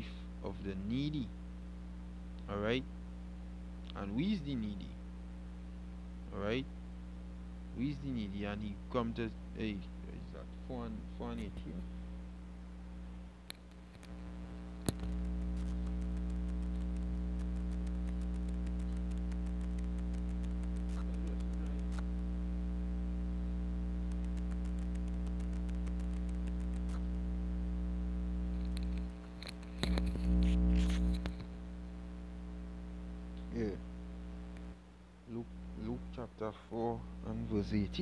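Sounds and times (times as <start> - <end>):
steady low hum: 0.0 - 38.0
faint scattered clicks: 14.8 - 22.1, 24.0 - 27.1.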